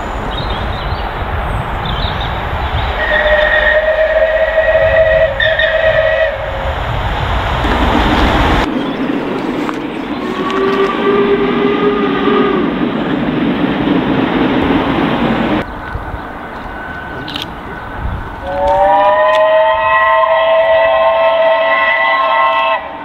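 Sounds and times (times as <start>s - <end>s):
locomotive low rumble: 0.0s - 22.8s
steam locomotive whistle: 2.9s - 6.9s, 10.2s - 12.8s, 16.8s - 23.0s
long rising steam whistle: 3.0s - 6.8s, 10.4s - 12.8s, 18.4s - 23.0s.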